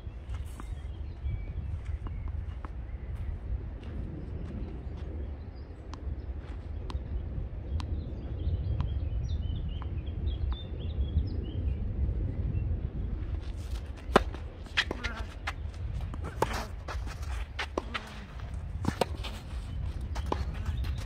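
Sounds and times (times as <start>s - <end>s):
small birds chirping: 0.0s - 3.4s, 13.8s - 21.0s
low outdoor rumble: 3.1s - 21.0s.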